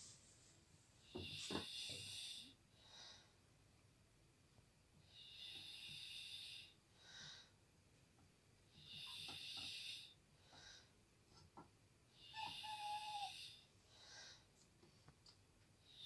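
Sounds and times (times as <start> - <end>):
slow raspy breathing: 8.8 - 11.0, 12.2 - 14.5.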